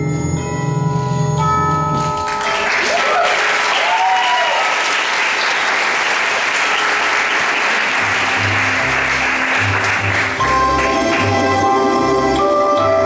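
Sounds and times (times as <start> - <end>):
audience applauding: 2.3 - 11.6
recorded music with bass line: 8.0 - 13.0.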